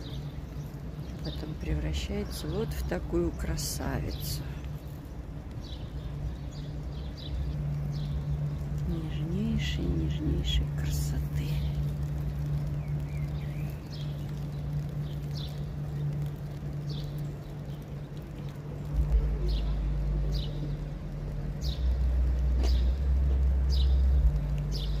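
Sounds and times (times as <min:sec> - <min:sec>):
low rumble bursts: 0:00.0 - 0:25.0
steady low hum: 0:00.0 - 0:25.0
bird chirping: 0:12.5 - 0:20.9.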